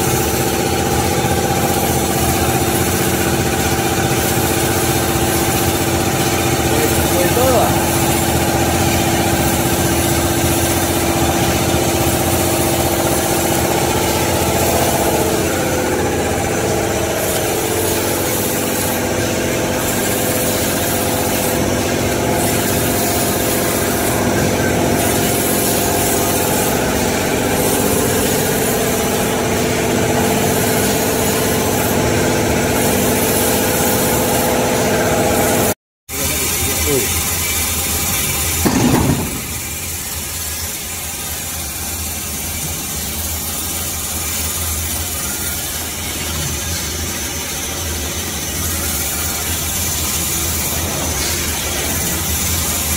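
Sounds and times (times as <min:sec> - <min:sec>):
machine mechanical hum: 0:00.0 - 0:52.9.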